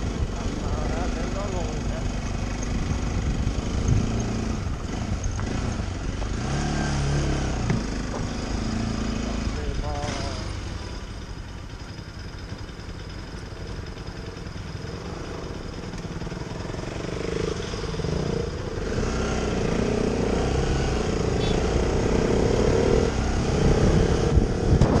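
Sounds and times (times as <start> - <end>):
motorcycle engines rumbling: 0.0 - 25.0.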